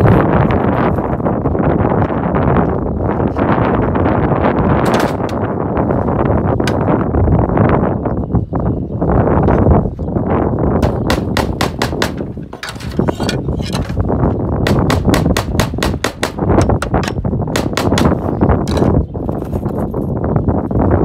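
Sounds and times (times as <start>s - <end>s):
wind rumble on microphone: 0.0s - 21.0s
hammer tapping nails: 10.8s - 12.7s, 14.7s - 18.8s.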